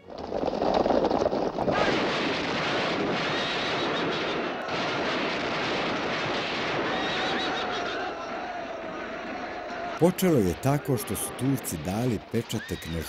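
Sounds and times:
rumbling: 0.0s - 8.9s
gunfire: 1.8s - 10.0s.

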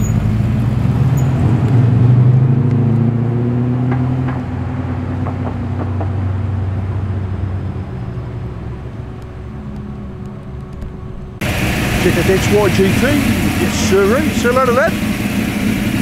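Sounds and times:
car engine pulling away: 0.0s - 16.0s.

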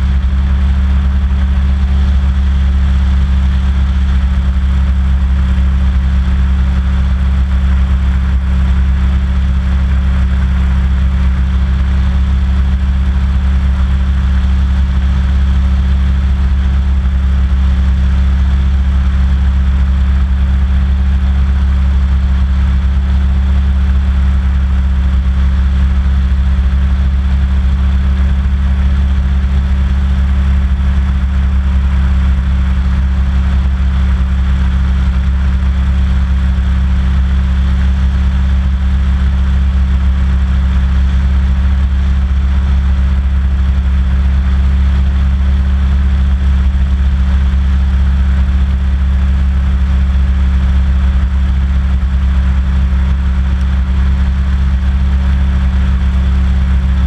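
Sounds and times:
hovercraft engine drone: 0.0s - 42.4s.

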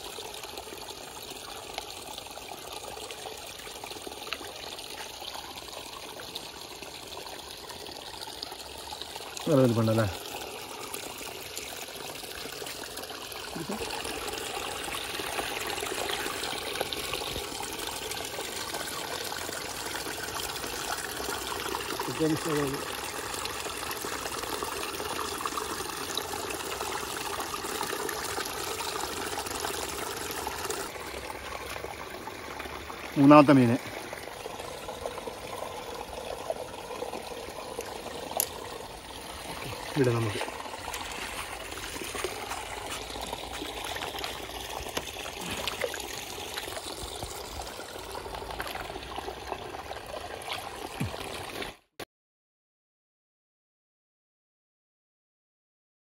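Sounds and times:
water trickling: 0.0s - 51.9s.

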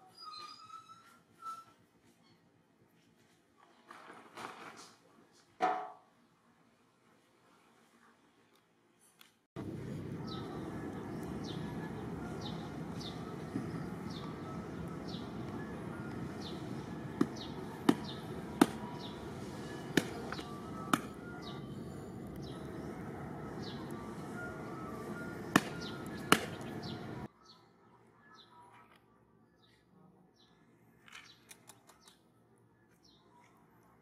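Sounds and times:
high falling bird chirp: 9.6s - 27.3s.

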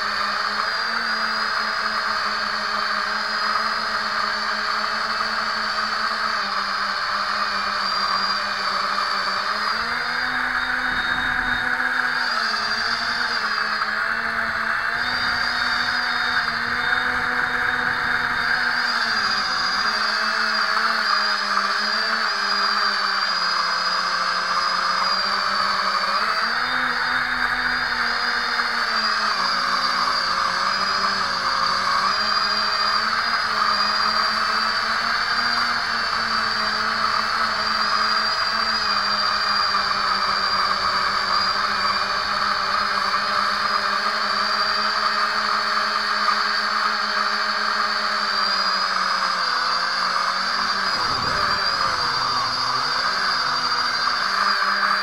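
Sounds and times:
drone propellers whining: 0.0s - 55.0s
rushing air: 50.5s - 54.2s.

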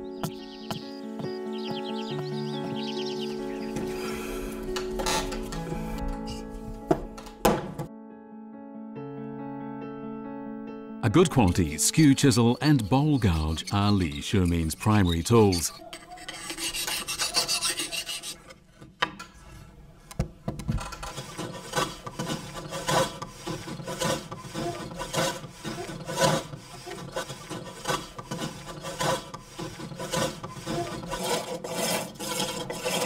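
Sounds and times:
chisel cutting strokes on lathe: 11.2s - 18.5s, 21.0s - 33.0s
chisel scraping wood: 12.3s - 19.6s, 20.8s - 33.0s.

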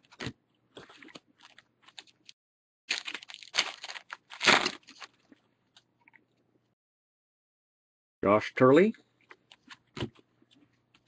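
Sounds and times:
foil wrapper crinkling: 0.0s - 5.2s.

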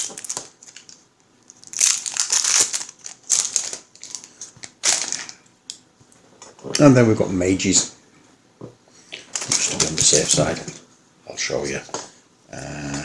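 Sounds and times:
plastic wrapping crinkling: 0.0s - 5.5s, 9.2s - 10.8s.

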